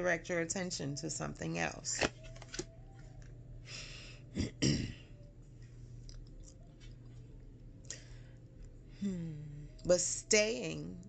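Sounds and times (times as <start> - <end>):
paper pages rustling: 2.0 - 2.7
woman clearing her throat: 4.4 - 5.1.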